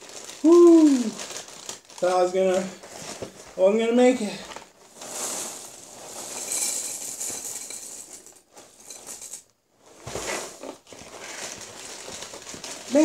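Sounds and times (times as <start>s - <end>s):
cereal pouring into ceramic bowl: 4.9s - 8.2s.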